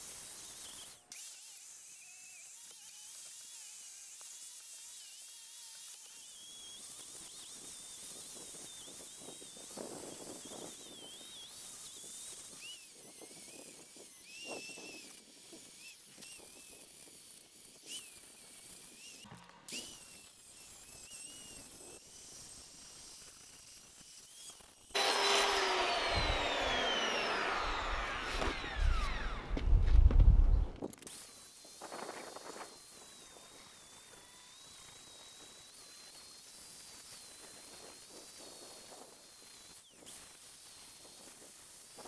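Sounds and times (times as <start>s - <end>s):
angle grinder whining on metal: 0.0s - 42.0s.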